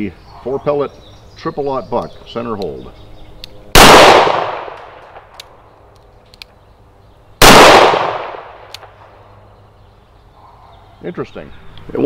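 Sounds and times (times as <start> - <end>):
gunshot echo: 3.8 - 5.3, 7.4 - 8.9
revolver gunshot: 3.8 - 5.3, 7.4 - 9.0.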